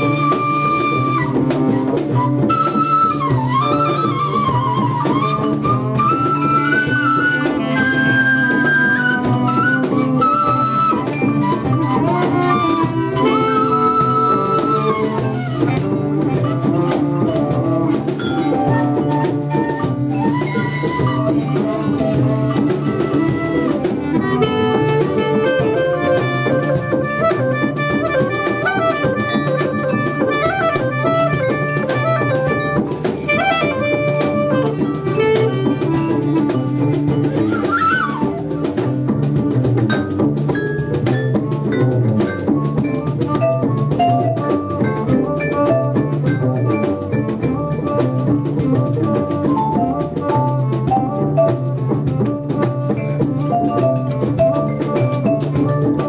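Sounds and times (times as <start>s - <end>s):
drum kit and hand percussion: 0.0s - 56.0s
wind instruments playing melody: 0.0s - 56.0s.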